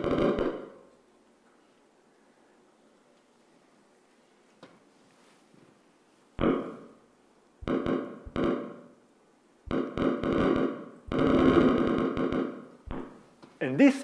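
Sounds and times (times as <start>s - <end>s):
bursts of rapid clicks: 7.6s - 8.8s, 9.7s - 13.0s.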